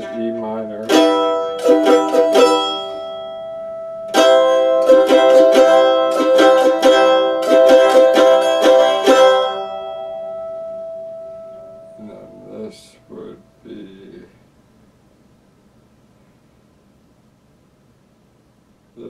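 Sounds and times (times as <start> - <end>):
mandolin strumming: 0.0 - 14.1.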